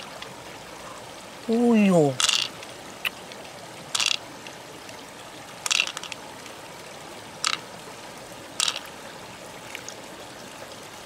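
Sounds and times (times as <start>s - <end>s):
water trickling: 0.0s - 11.0s
fingers handling mussel flesh: 5.7s - 6.2s, 8.6s - 8.9s.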